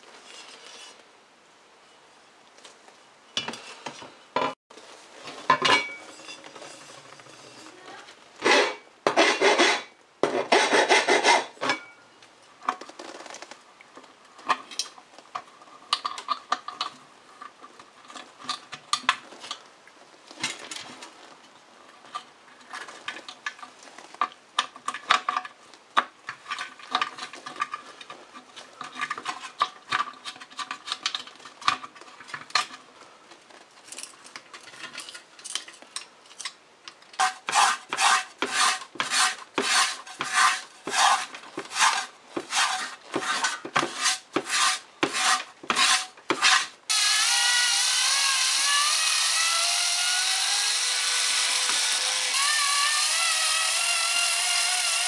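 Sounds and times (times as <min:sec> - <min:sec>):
file rasping on metal: 0:08.4 - 0:11.6, 0:37.2 - 0:46.7
scrubbing strokes on steel pan: 0:37.2 - 0:46.8.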